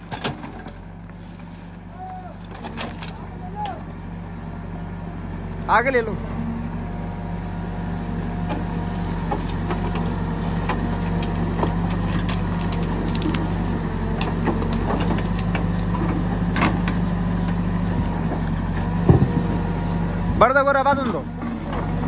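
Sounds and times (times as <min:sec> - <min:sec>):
diesel engine running: 0:00.0 - 0:22.0
stones and gravel rattling: 0:10.8 - 0:16.9
bucket scraping rocky ground: 0:11.2 - 0:17.0.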